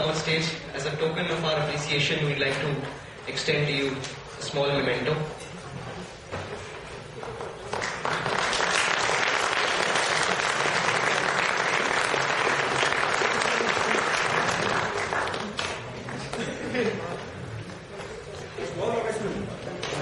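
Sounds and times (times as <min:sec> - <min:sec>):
audience applauding: 0:07.7 - 0:16.4.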